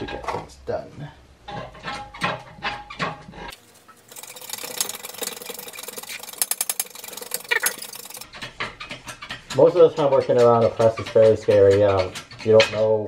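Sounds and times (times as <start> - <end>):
rapid even ticks: 3.6 - 12.8
metallic ratcheting clicks: 4.1 - 9.6.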